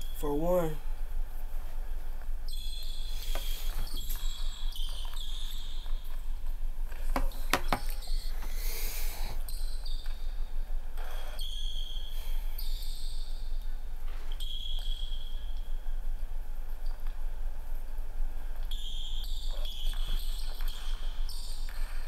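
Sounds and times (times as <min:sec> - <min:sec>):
steady low hum: 0:00.0 - 0:22.0
basketball bouncing on wooden floor: 0:07.1 - 0:08.0.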